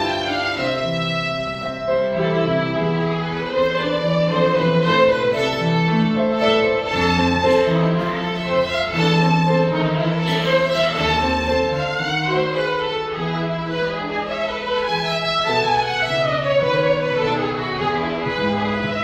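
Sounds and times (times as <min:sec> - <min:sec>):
grand piano accompaniment: 0:00.0 - 0:19.0
violins playing a melody: 0:00.0 - 0:19.0.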